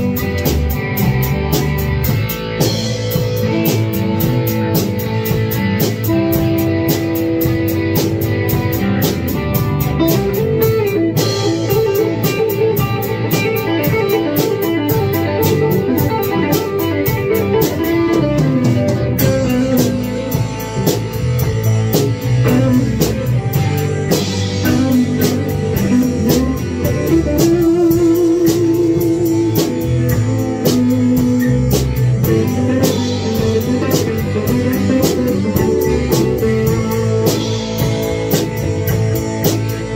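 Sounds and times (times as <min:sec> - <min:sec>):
drums keeping a beat: 0:00.0 - 0:39.9
electric guitars playing: 0:00.0 - 0:39.9.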